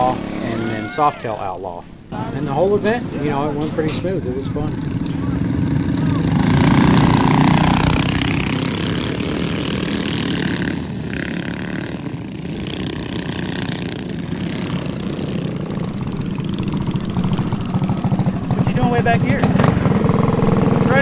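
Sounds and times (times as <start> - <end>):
small minibike engines racing: 4.2 - 21.0.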